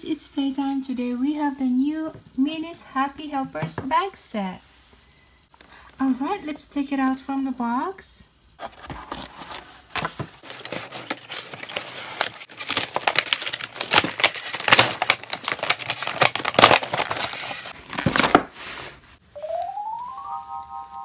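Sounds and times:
cardboard rustling: 0:08.6 - 0:19.2
plastic packaging crackling: 0:09.1 - 0:18.6.

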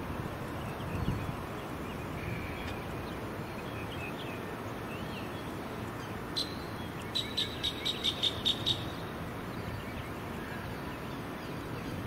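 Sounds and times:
low background noise: 0:00.0 - 0:12.0
bird chirping: 0:00.5 - 0:12.0.

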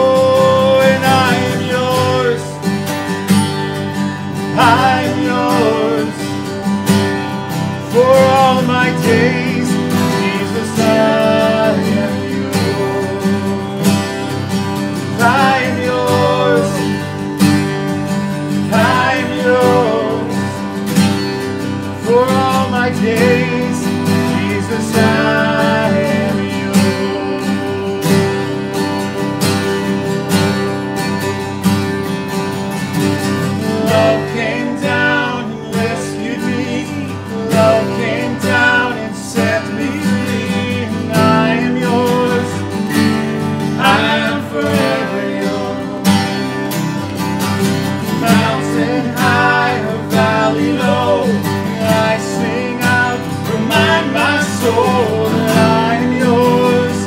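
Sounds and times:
acoustic guitars strumming country song: 0:00.0 - 0:57.0.

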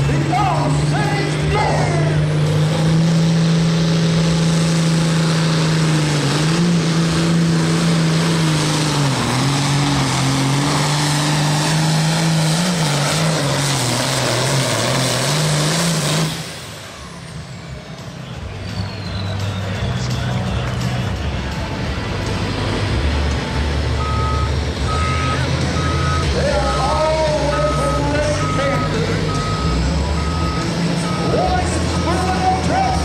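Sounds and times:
tractor engine running flat out: 0:00.0 - 0:33.0.

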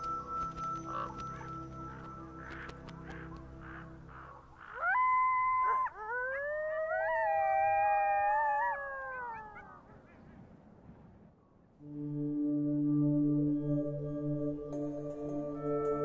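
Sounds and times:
coyotes howling: 0:00.5 - 0:10.3.

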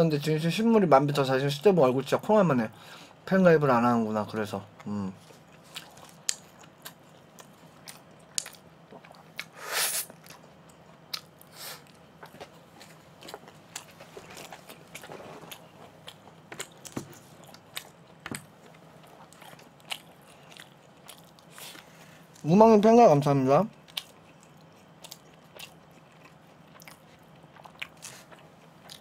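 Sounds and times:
chewing and biting food: 0:04.8 - 0:09.5, 0:10.1 - 0:22.4, 0:23.7 - 0:29.0.

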